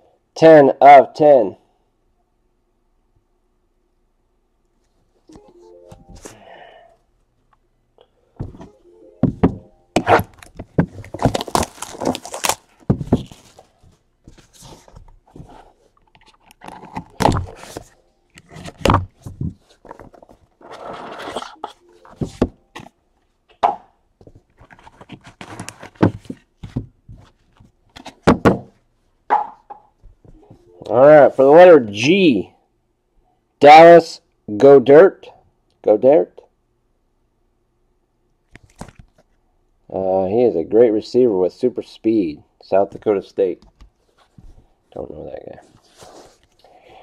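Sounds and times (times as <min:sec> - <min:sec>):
cardboard boxes knocking and scraping: 0:08.4 - 0:12.2, 0:12.8 - 0:13.6, 0:22.1 - 0:22.9, 0:24.8 - 0:27.3
cards rustling: 0:10.0 - 0:22.9.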